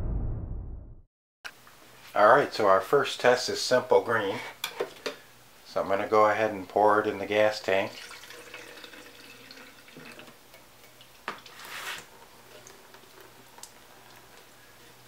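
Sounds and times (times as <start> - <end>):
liquid trickling into tank: 7.9 - 14.6.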